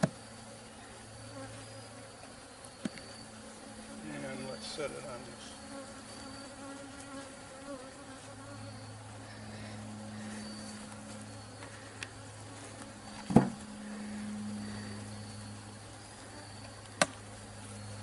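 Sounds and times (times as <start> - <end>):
honeybees buzzing: 0.0 - 18.0.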